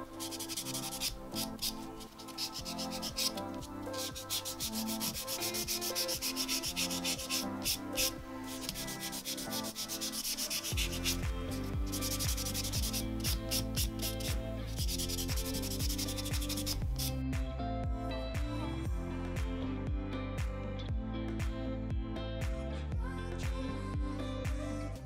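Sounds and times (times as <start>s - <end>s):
nail file rasping: 0.0s - 17.2s.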